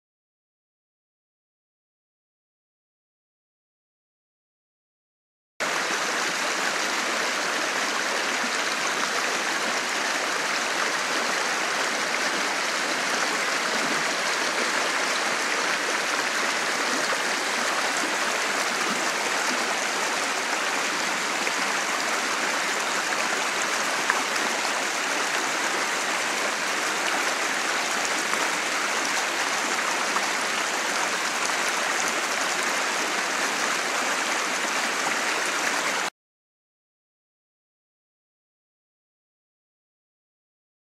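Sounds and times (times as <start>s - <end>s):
creek rushing over rocks: 5.6s - 36.1s.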